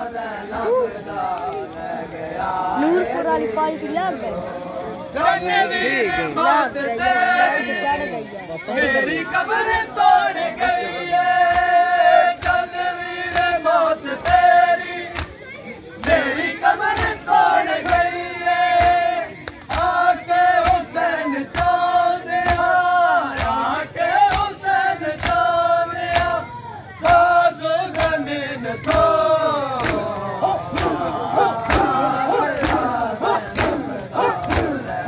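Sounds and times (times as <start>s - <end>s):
men chanting a lament: 0.0s - 35.0s
crowd beating chests: 27.0s - 35.0s.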